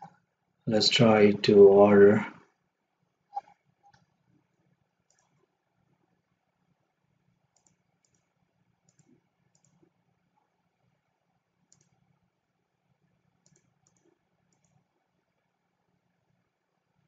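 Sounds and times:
computer mouse clicks: 3.3s - 5.5s, 7.5s - 10.0s, 11.6s - 12.1s, 13.4s - 14.9s.

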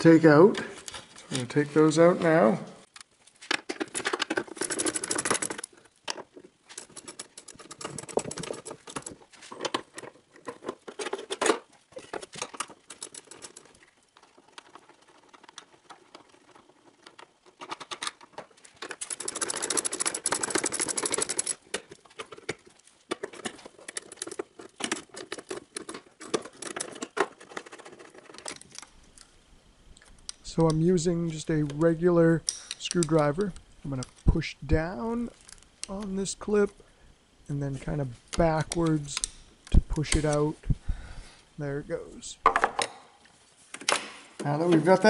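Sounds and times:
metal parts clinking: 3.6s - 28.9s.

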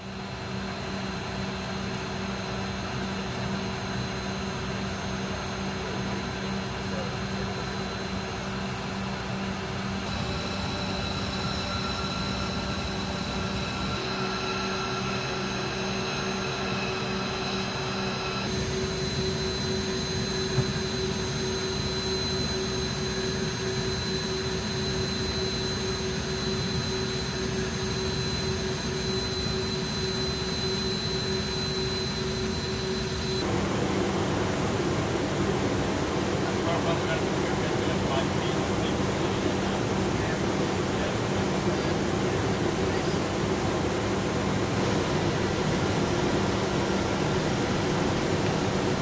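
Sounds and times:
jet aircraft engine running: 0.0s - 49.0s
high thin whine: 43.1s - 49.0s.

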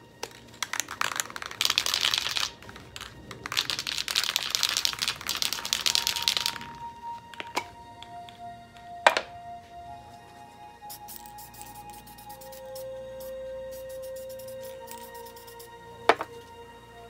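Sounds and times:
spray can ball rattling: 0.2s - 6.8s, 10.9s - 16.3s.

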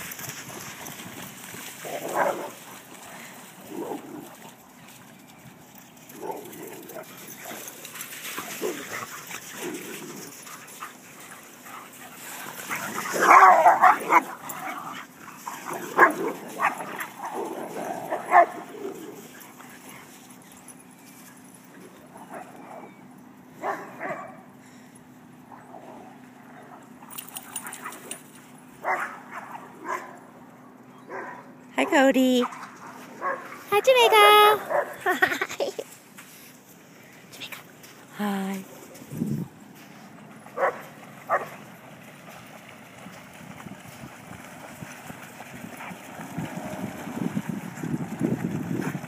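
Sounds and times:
dogs barking: 1.8s - 2.7s, 11.8s - 19.2s, 23.6s - 24.5s, 28.8s - 30.2s, 31.0s - 31.5s, 32.4s - 33.7s, 34.6s - 35.1s, 40.5s - 41.6s.

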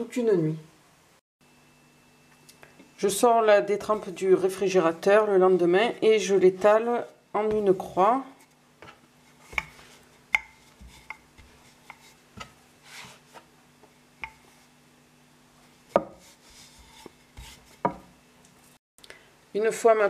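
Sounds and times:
faint steady hum: 0.0s - 20.0s
rolling pin knocking on worktop: 8.8s - 12.6s, 15.9s - 16.2s, 17.4s - 18.1s.

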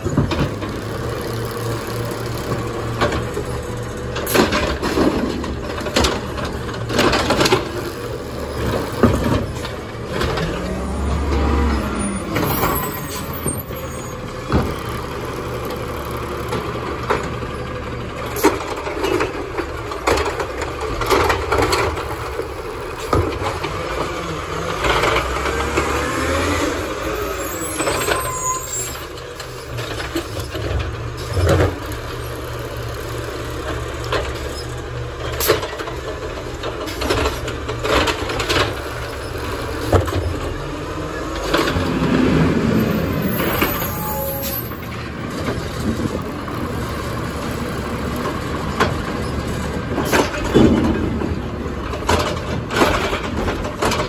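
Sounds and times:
garbage truck engine running: 0.0s - 54.0s
carts banging against hopper: 2.4s - 13.7s, 48.1s - 54.0s.

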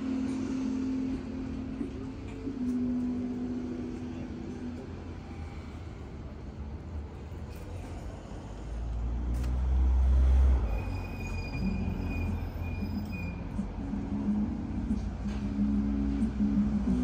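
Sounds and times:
vehicle passing with low rumble: 3.4s - 17.0s
thin high squeal: 10.6s - 13.5s.

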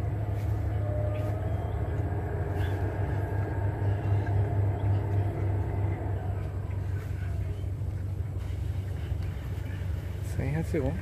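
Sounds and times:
low rumble: 0.0s - 11.0s
faint thin whistling tones: 0.3s - 9.9s.

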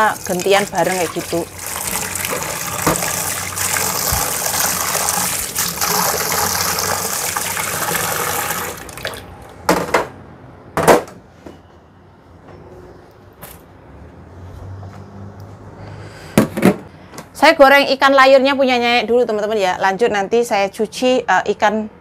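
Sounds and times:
tap running into sink: 0.2s - 9.2s.

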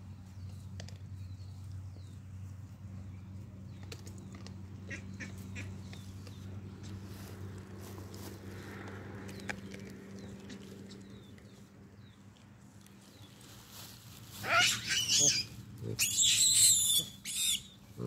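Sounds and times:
baboons screaming: 14.4s - 17.8s.

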